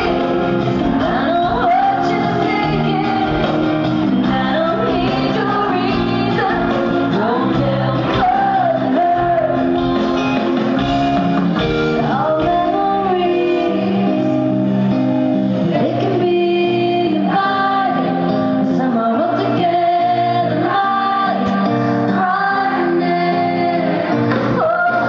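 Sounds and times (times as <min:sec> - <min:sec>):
woman singing: 0:00.0 - 0:10.6, 0:11.9 - 0:14.5, 0:15.6 - 0:25.0
live rock band: 0:00.0 - 0:25.0.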